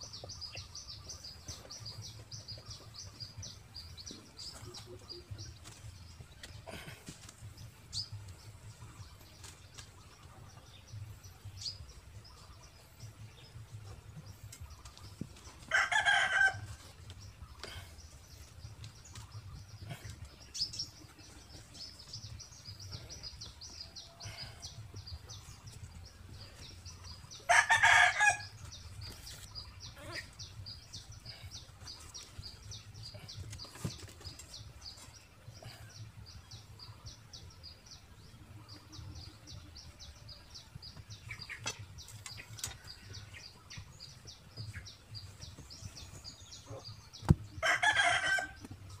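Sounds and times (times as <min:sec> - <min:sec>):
rooster crowing: 0:27.5 - 0:28.5, 0:47.6 - 0:48.6.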